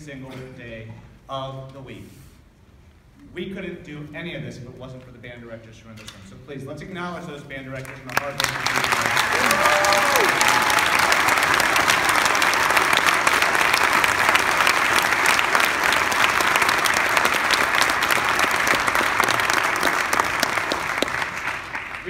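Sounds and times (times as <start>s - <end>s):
audience applause: 7.8s - 22.0s
person cheering: 9.2s - 12.5s.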